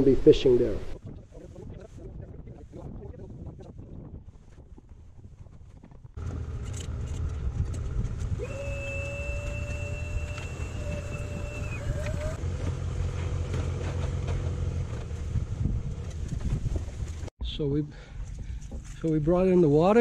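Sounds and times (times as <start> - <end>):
motor humming: 6.2 - 15.7
thin whistling tone: 8.4 - 12.4.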